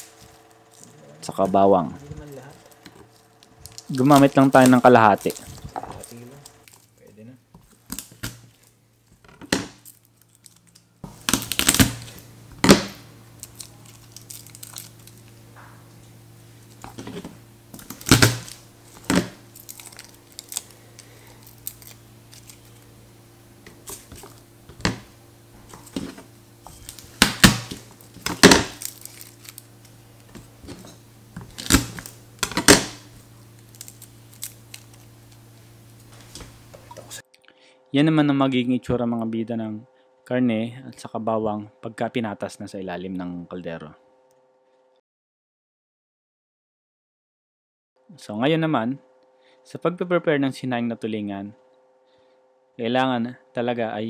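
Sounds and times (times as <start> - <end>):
garlic skins crackling: 0.0 - 7.0, 9.8 - 24.6, 25.6 - 37.2
steady low hum: 0.0 - 45.0.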